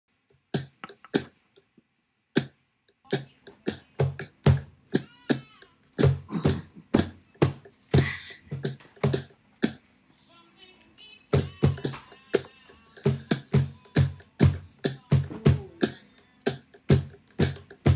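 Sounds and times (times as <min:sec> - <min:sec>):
cajon played by hand: 0:11.4 - 0:17.9.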